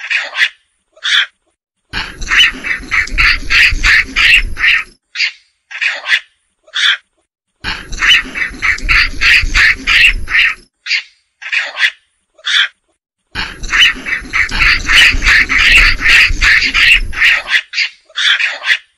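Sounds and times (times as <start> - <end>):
macaque squealing cries: 0.0 - 1.3, 2.0 - 7.0, 7.7 - 12.8, 13.4 - 18.9
low rumble: 7.7 - 10.7, 13.4 - 17.5.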